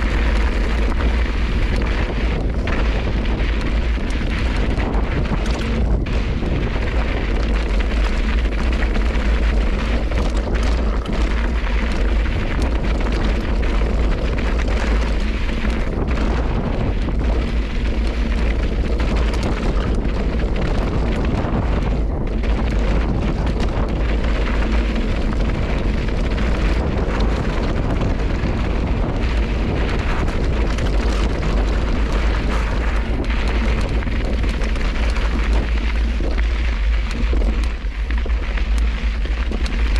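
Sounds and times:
bike tyres rattling on gravel: 0.0s - 39.9s
wind buffeting microphone: 0.0s - 39.9s.

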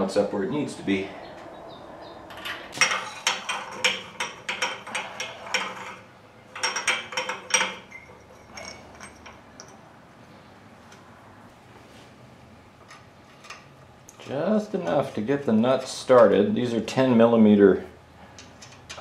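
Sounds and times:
metal wrench and nuts clinking: 2.3s - 9.8s.

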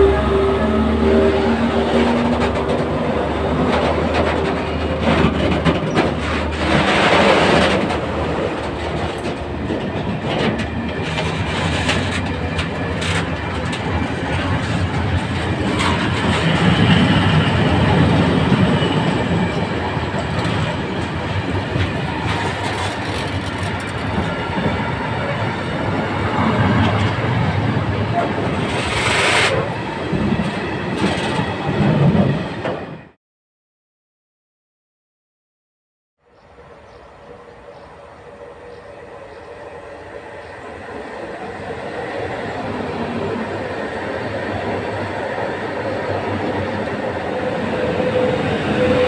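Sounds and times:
diesel locomotive tones: 0.0s - 33.0s, 36.2s - 49.0s
train wheels rumbling on rail: 0.0s - 33.2s, 36.5s - 49.0s
clatter over rail joints: 2.0s - 16.7s, 20.2s - 24.8s.

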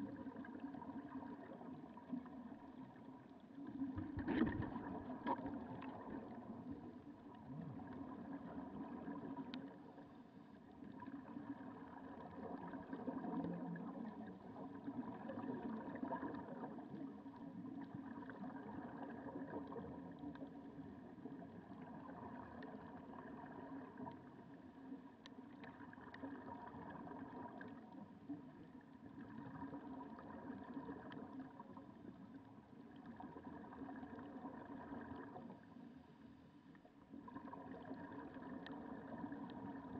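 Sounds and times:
faint hum: 0.0s - 39.9s
muffled underwater rumble: 0.0s - 39.9s.

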